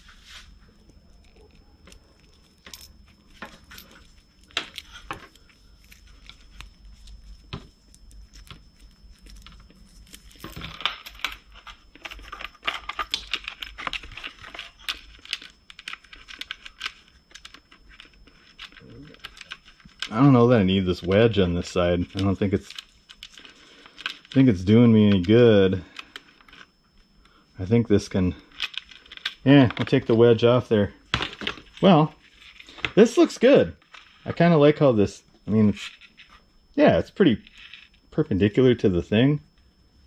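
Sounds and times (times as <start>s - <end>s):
rustling: 0.0s - 27.2s
clicks and clinks of small parts: 0.8s - 26.7s, 28.1s - 30.2s.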